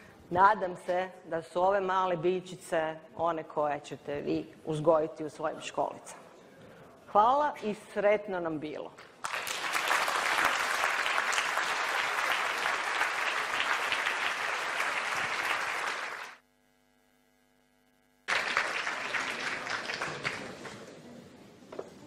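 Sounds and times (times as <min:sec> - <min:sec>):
audience applauding: 0:09.2 - 0:16.4, 0:18.3 - 0:21.0.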